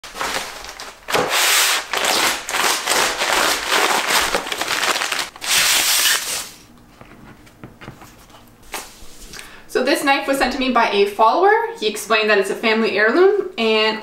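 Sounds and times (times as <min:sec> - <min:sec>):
paper crinkling and crackling: 0:00.0 - 0:06.4.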